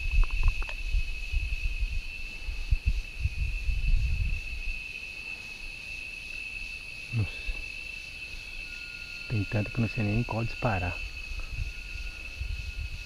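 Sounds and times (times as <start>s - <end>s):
low rumbling on microphone: 0.0s - 4.8s
insects trilling: 0.0s - 13.0s.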